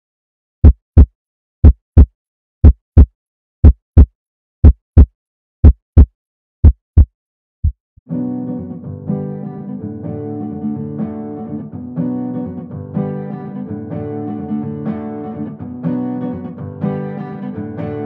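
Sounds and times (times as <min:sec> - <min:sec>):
heartbeat thumps: 0:00.6 - 0:07.8.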